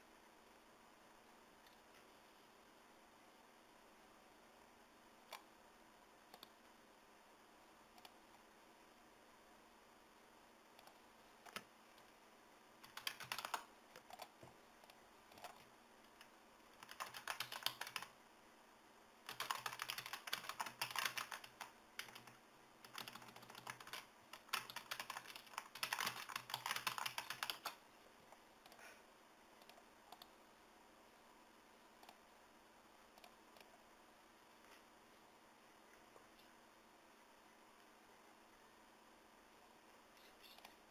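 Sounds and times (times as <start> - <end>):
typing on keyboard: 10.8 - 11.7, 12.8 - 18.2, 19.3 - 27.8.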